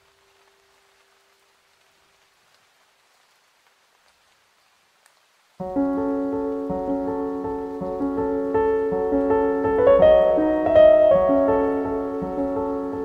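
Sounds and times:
rain hiss: 0:00.0 - 0:13.0
piano piece: 0:05.6 - 0:13.0.

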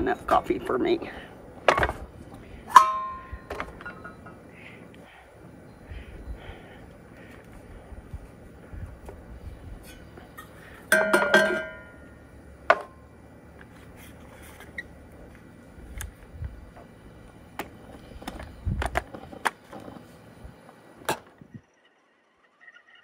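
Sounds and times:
loud ringing clink: 0:02.7 - 0:04.4, 0:10.9 - 0:12.2.

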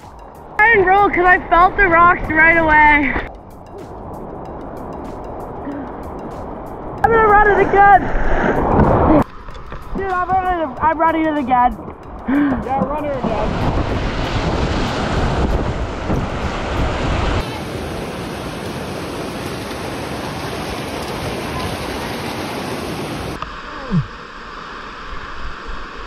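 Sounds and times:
wind buffeting microphone: 0:00.0 - 0:23.4
rushing whitewater: 0:05.5 - 0:11.6, 0:12.4 - 0:26.0.

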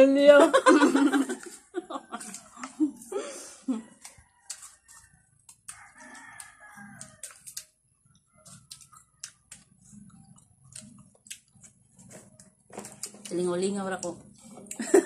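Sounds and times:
faint rooster crowing: 0:03.6 - 0:09.7
fruit chewing crunches: 0:04.0 - 0:14.8.

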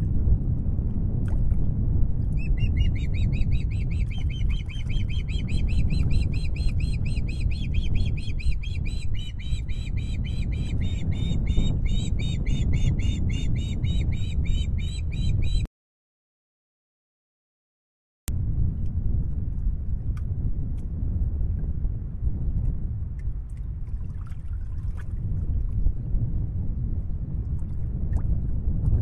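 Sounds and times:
steady low rumble: 0:00.0 - 0:15.7, 0:18.3 - 0:29.0
bird giving high repeated calls: 0:02.4 - 0:15.7.

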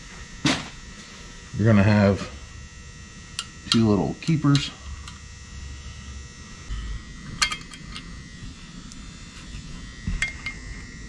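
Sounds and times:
steady faint hum: 0:00.0 - 0:11.0.

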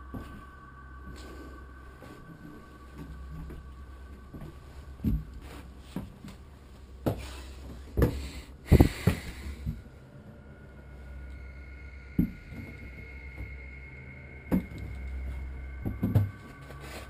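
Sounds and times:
faint steady hum: 0:00.0 - 0:17.0
dull thumps and knocks: 0:15.8 - 0:16.6.

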